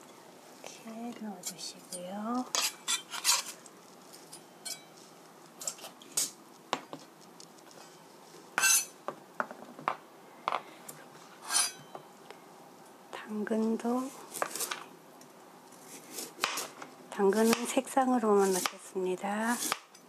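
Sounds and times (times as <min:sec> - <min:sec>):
knife on plastic cutting board: 0:02.5 - 0:03.6, 0:18.4 - 0:18.8.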